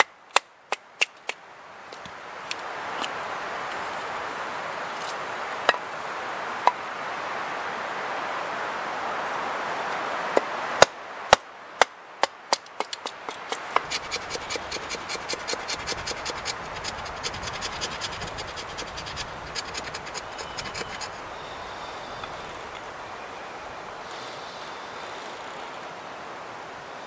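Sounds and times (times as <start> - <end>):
knife shaving kindling: 13.6 - 21.2.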